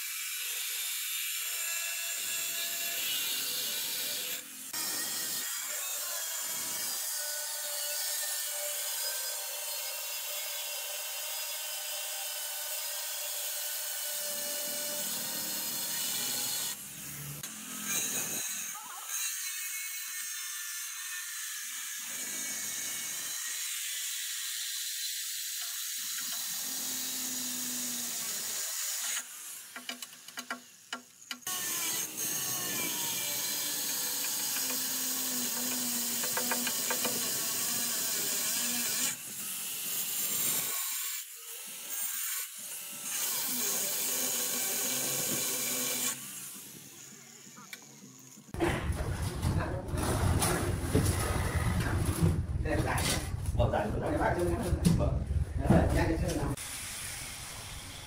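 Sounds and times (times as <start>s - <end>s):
angle grinder sanding stone: 30.6s - 48.6s.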